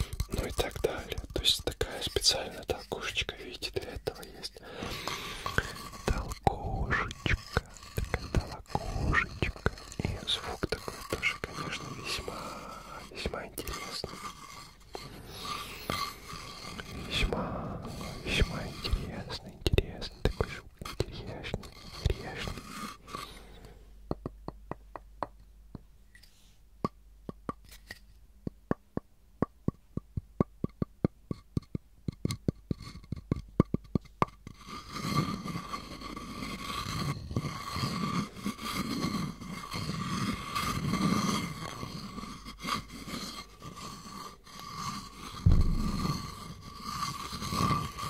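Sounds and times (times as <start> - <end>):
pestle scraping around mortar: 0.0 - 2.9, 4.7 - 23.5, 30.7 - 48.0
wooden pestle tapping mortar: 24.1 - 25.9, 26.8 - 27.6, 28.4 - 34.4.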